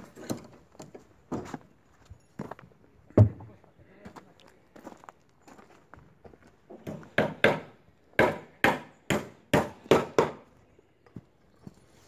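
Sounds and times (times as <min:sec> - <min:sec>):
footsteps crunching on gravel: 0:04.0 - 0:06.6.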